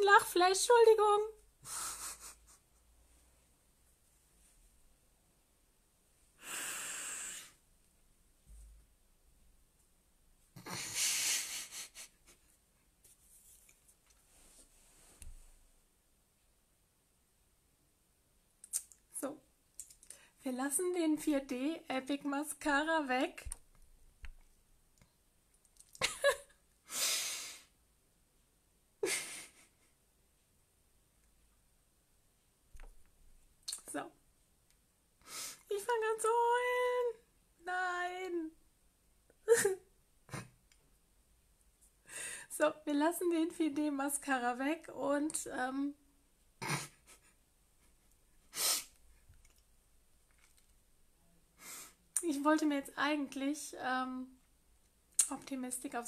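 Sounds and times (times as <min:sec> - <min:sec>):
woman stifling laughter: 0:01.7 - 0:02.6, 0:10.6 - 0:12.4, 0:26.0 - 0:26.6, 0:29.0 - 0:29.9
breathy exhale through nose: 0:06.4 - 0:07.6, 0:35.2 - 0:35.6, 0:48.5 - 0:49.0.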